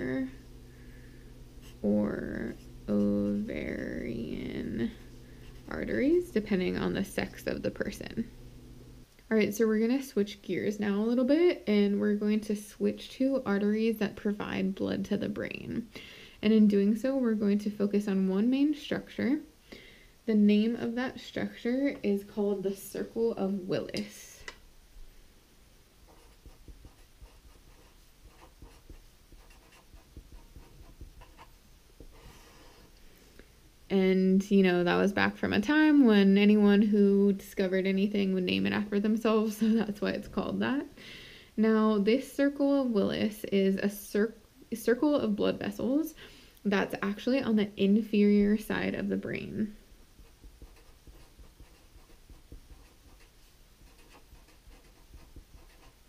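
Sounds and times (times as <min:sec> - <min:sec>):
marker scratching on paper: 0:26.1 - 0:32.9, 0:50.2 - 0:56.0.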